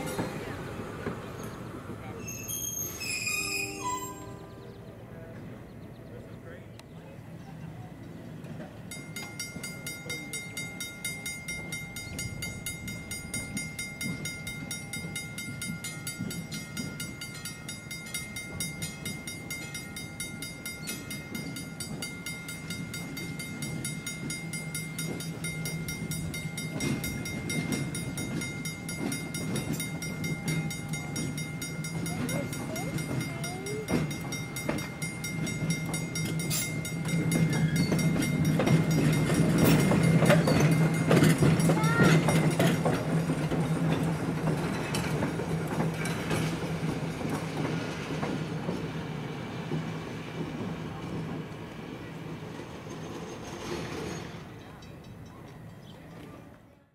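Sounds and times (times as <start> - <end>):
trolley car rumble: 0.0 - 56.9
crossing signal bell ringing: 3.0 - 4.7, 8.8 - 46.8.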